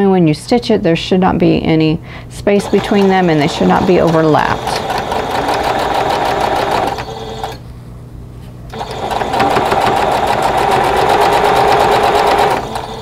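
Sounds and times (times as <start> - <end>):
sewing machine stitching: 2.6 - 7.6, 8.7 - 13.0.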